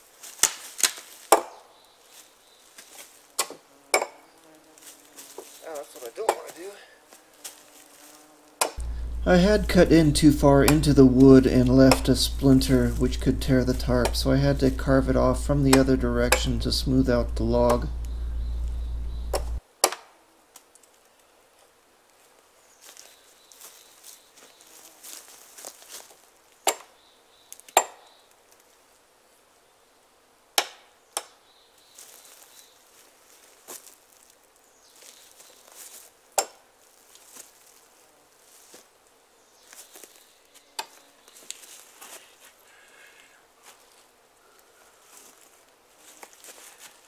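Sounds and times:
footsteps in grass and litter: 0.0 - 19.6, 22.1 - 26.6, 31.7 - 47.0
hatchet knocking on wood: 10.6 - 10.9.

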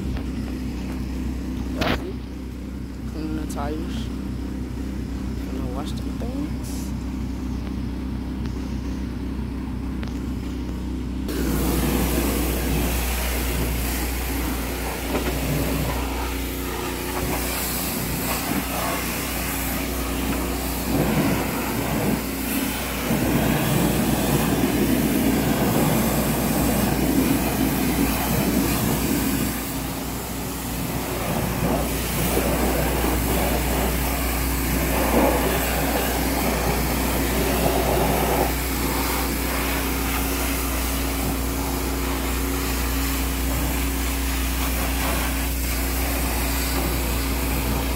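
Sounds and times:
pressure washer motor hum: 0.0 - 47.9
water jet hissing on metal: 11.3 - 47.9.

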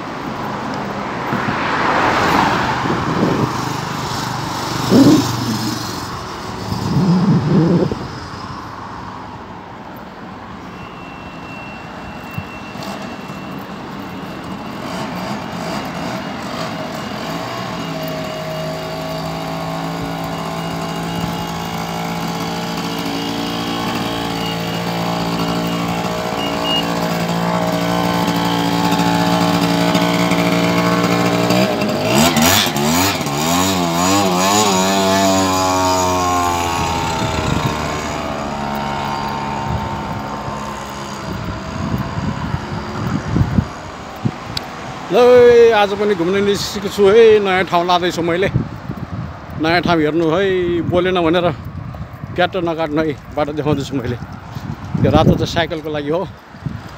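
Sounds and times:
vehicle engine passing by: 0.9 - 9.2, 14.8 - 47.6.

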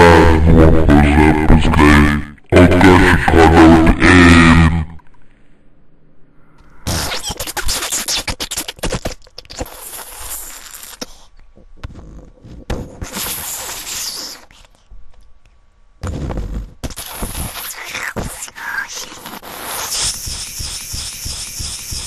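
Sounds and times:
spluttering fart sound effect: 6.8 - 11.2, 11.8 - 14.4, 16.0 - 18.4, 19.1 - 22.0.

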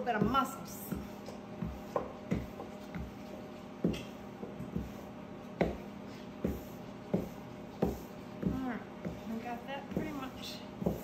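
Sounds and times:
rolling pin knocking on countertop: 0.0 - 3.2, 3.8 - 5.0, 5.6 - 11.0
steady low hum: 0.0 - 11.0.

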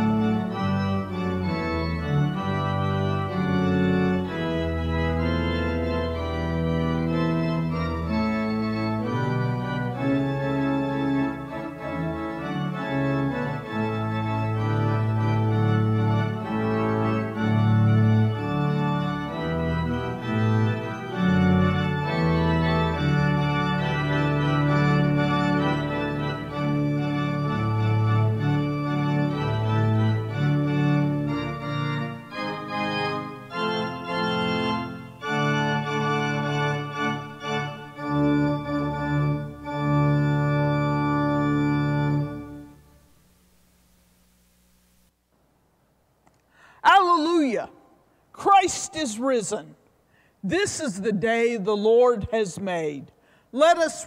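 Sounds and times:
pipe organ chords: 0.0 - 45.1, 46.6 - 54.0.

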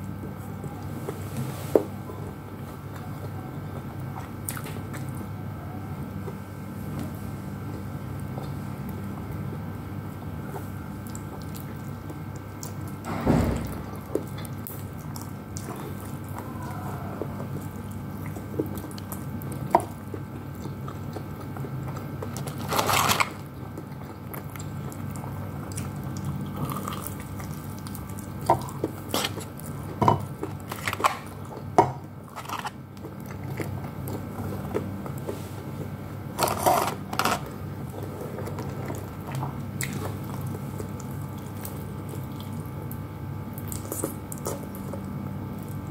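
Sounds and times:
person chewing: 14.0 - 45.9.

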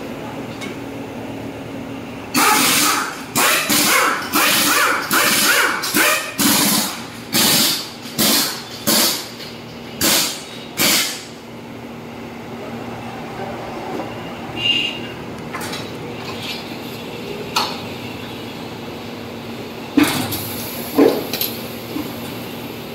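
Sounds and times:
compressed air bursts: 6.4 - 9.2, 10.0 - 11.3.

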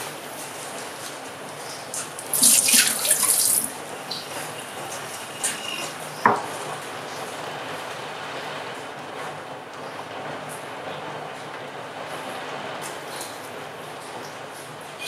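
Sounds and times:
water splashing into sink: 2.2 - 4.3.

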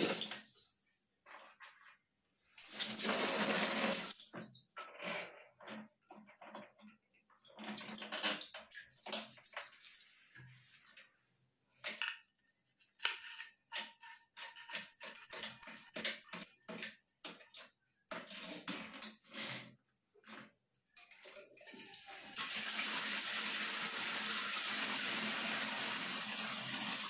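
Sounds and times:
metal shower hose clattering: 3.8 - 11.1.

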